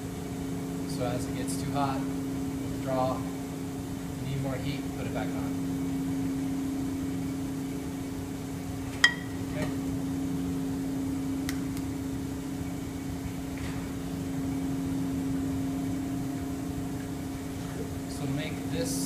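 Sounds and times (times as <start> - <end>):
kitchen equipment hum: 0.0 - 19.0
frying pan clinking on metal: 9.0 - 9.4.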